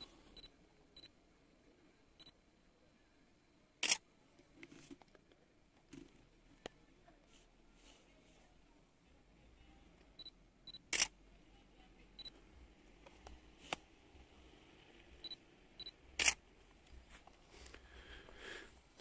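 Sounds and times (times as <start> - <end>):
camera focus beeps: 3.8 - 4.0, 10.2 - 11.1, 15.2 - 16.4
camera shutter clicks: 10.9 - 11.1, 16.2 - 16.4.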